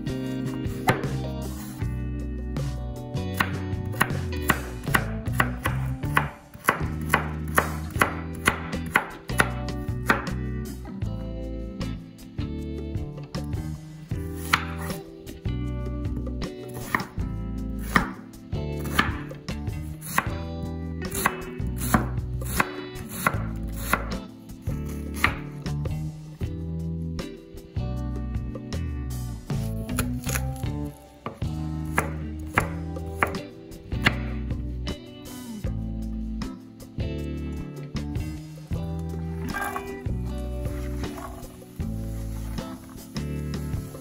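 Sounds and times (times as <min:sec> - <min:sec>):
knife chopping on wooden board: 0:00.8 - 0:01.2, 0:03.4 - 0:10.4, 0:14.4 - 0:14.9, 0:16.8 - 0:17.2, 0:17.8 - 0:18.2, 0:18.8 - 0:19.3, 0:20.0 - 0:20.4, 0:21.1 - 0:24.2, 0:25.1 - 0:25.5, 0:29.7 - 0:34.3, 0:39.4 - 0:40.0, 0:40.7 - 0:41.5.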